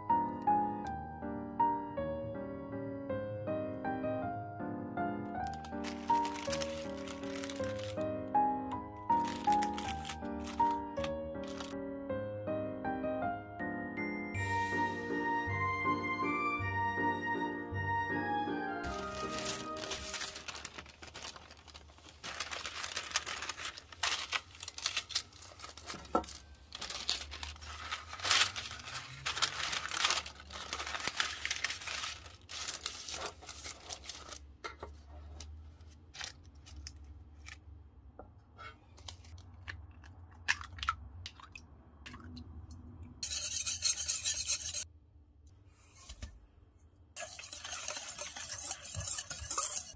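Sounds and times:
paper clicking against metal pan: 5.4 - 8.0, 9.2 - 11.8, 18.9 - 34.8
parchment paper crinkling: 5.4 - 8.1, 9.1 - 11.8, 18.9 - 37.6.

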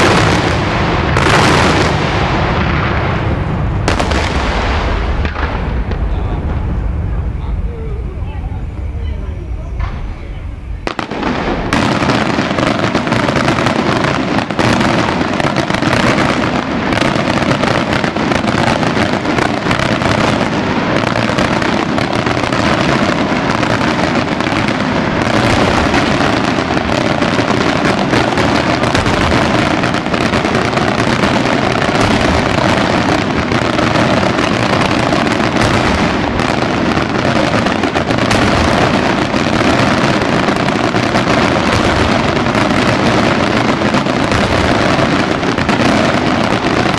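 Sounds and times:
fireworks bursts and bangs: 0.0 - 46.9.

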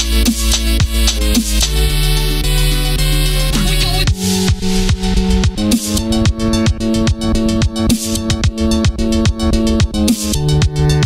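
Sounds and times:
hissy high swells: 3.5 - 8.2
deep kick drum: 3.6 - 10.0.

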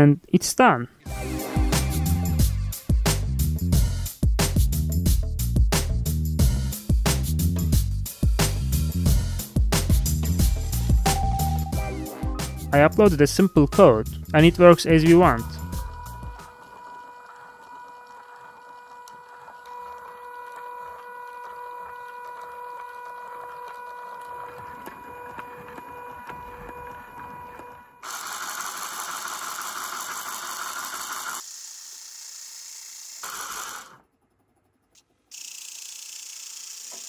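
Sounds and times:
motor mechanical whine: 15.6 - 31.4.

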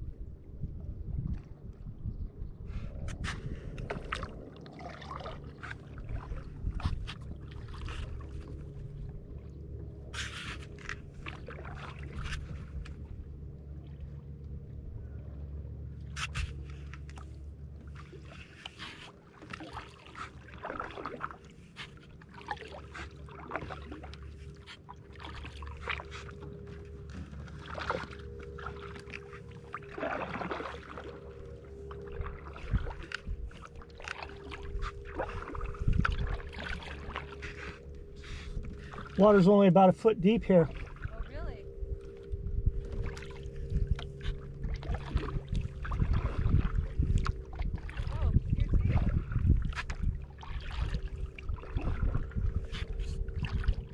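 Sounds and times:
low steady rumble: 0.0 - 53.9
paddle blades splashing in water: 3.2 - 9.0, 10.0 - 13.2, 16.0 - 42.2, 42.8 - 53.9
water dribbling: 3.7 - 9.2, 17.2 - 53.9.

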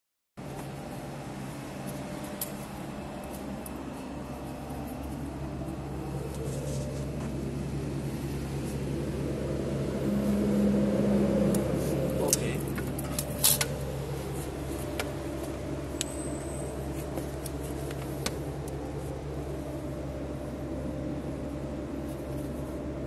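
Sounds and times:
machinery humming: 0.4 - 23.0
higher steady tone: 1.4 - 23.0.

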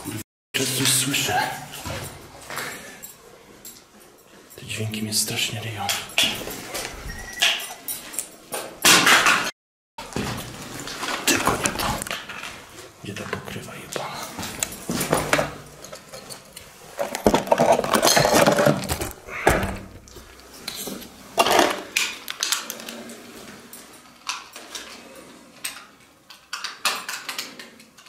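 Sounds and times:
hard objects clattering: 5.7 - 28.0.

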